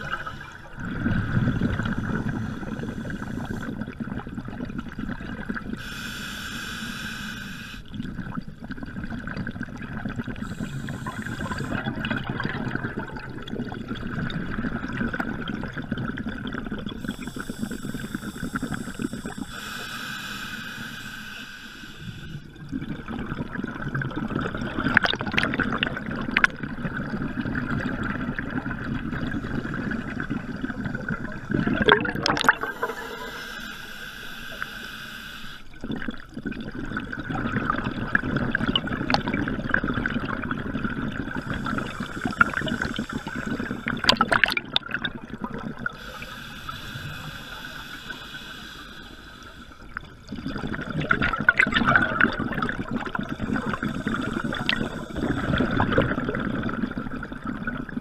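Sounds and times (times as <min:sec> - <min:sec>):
diver breathing through regulator: 0:00.0 - 0:04.0, 0:05.8 - 0:07.9, 0:10.4 - 0:12.0, 0:17.0 - 0:22.5, 0:29.2 - 0:35.8, 0:41.3 - 0:44.5, 0:45.9 - 0:50.0, 0:53.0 - 0:56.1
bubbling exhalations: 0:22.6 - 0:33.6, 0:35.8 - 0:58.0.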